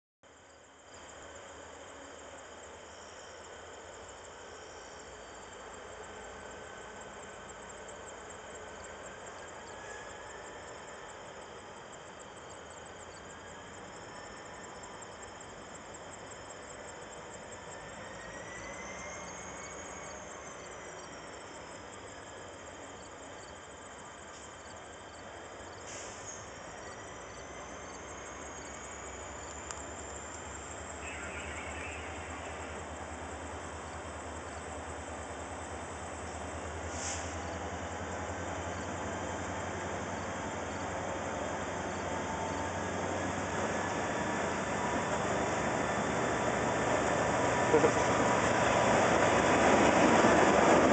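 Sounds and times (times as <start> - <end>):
crickets chirping: 0.2 - 50.9
diesel locomotive engine rumble: 0.4 - 50.9
high wavering squeals: 31.0 - 32.8.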